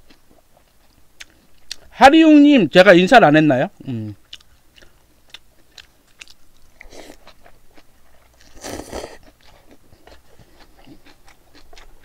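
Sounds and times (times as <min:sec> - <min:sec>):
wet chewing: 0:04.3 - 0:12.0
person slurping noodles: 0:08.5 - 0:09.2.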